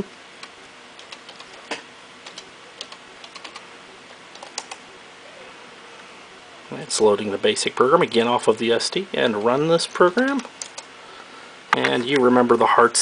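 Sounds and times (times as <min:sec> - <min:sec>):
keyboard keys clicking: 0:00.4 - 0:01.6, 0:02.2 - 0:03.6, 0:04.3 - 0:04.8, 0:10.2 - 0:10.9.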